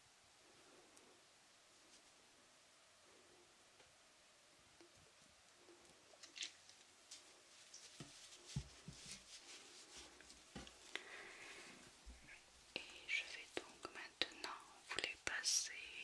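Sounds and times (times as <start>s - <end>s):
soft clicks and light taps: 4.7s - 9.4s, 11.8s - 15.8s.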